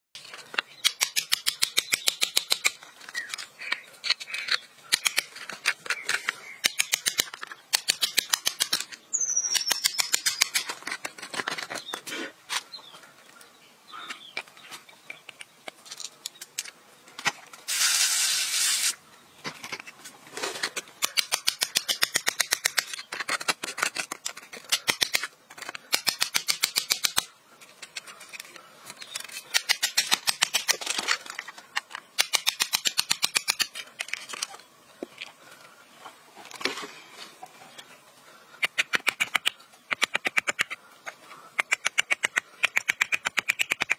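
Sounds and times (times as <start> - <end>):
rapid sharp clicks: 6.6 - 8.9, 38.6 - 40.8, 41.6 - 43.9
loud hiss: 17.7 - 19.0.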